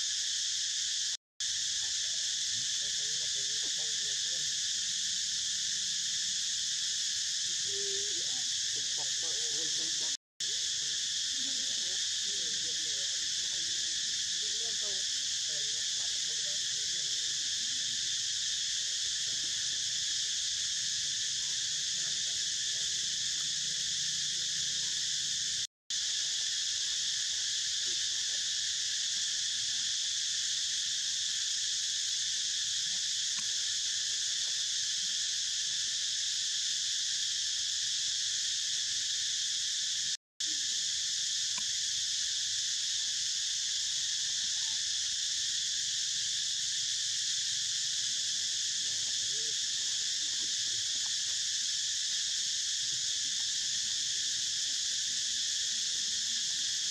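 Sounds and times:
insects chorus shrill drone: 0.0s - 56.9s.

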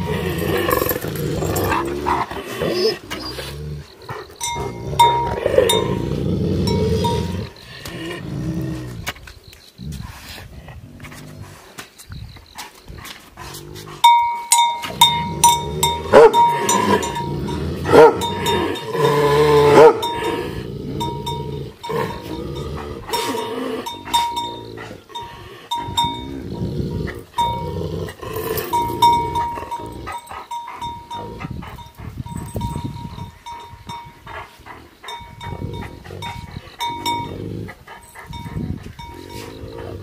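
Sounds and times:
bell clinking: 4.4s - 7.6s, 14.0s - 26.4s, 27.4s - 27.8s, 28.4s - 34.2s, 35.0s - 39.7s.

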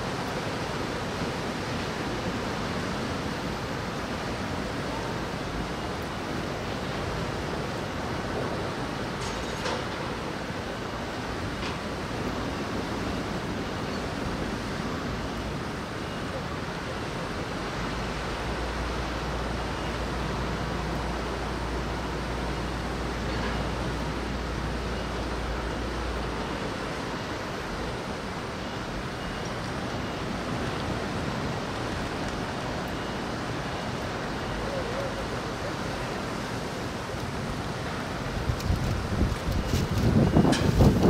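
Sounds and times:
rain: 0.0s - 41.0s
wind: 0.0s - 41.0s
wind rumble on microphone: 35.9s - 41.0s.

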